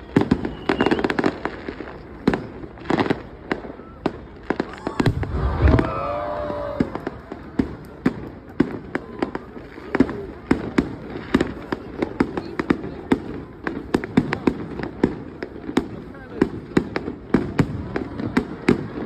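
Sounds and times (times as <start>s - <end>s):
firework bangs and crackles: 0.0s - 19.0s
firework shell booming: 4.8s - 8.3s.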